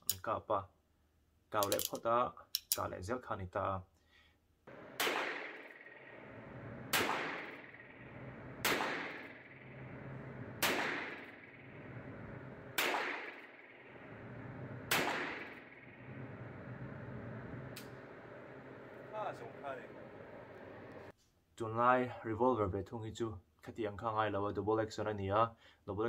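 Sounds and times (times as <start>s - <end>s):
revolver hammer cocking: 4.7s - 16.1s
revolver shots echoing: 4.7s - 19.4s.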